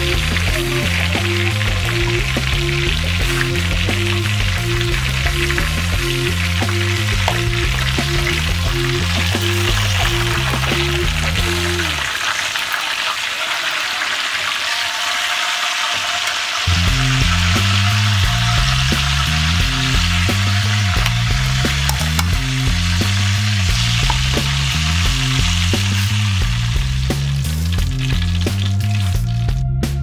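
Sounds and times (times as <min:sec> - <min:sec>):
background music with bass line: 0:00.0 - 0:12.1, 0:16.7 - 0:30.0
chicken sizzling in hot oil: 0:00.0 - 0:30.0
tongs turning food in pan: 0:17.6 - 0:29.3.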